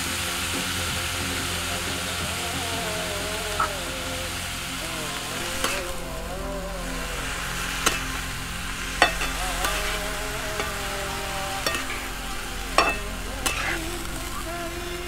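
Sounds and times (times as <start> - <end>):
vegetables sizzling in pan: 11.6 - 14.4.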